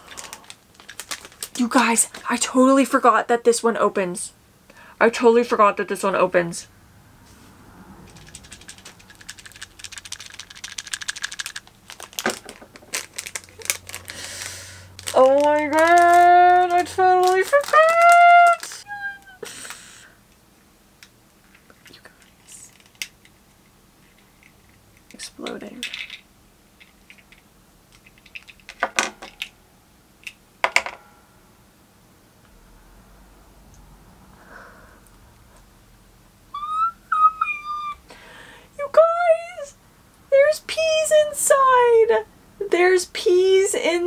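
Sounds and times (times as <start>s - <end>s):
plastic toy pieces clattering: 0.0s - 1.8s, 8.1s - 18.8s, 24.1s - 26.2s, 26.8s - 29.5s.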